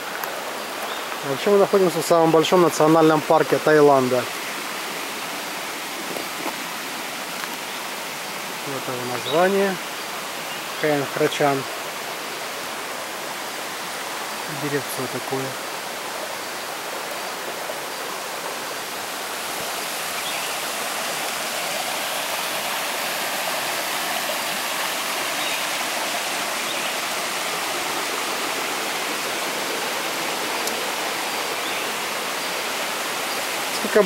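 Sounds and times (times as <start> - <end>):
stream tumbling over rocks: 0.0 - 34.0.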